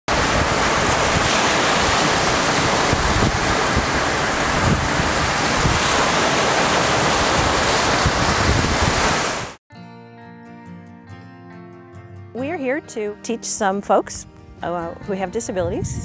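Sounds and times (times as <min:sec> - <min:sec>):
waves breaking on rocky shore: 0:00.1 - 0:09.6
wind rumbling on microphone: 0:00.1 - 0:09.6, 0:15.4 - 0:16.0.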